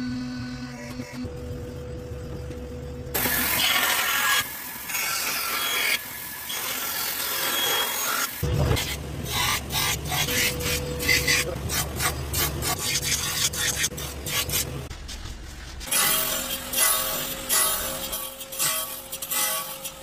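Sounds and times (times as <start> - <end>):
grinding wheel humming: 8.4 - 20.0
comb blank being scraped: 8.8 - 14.8
rasping against grinding wheel: 8.8 - 14.9.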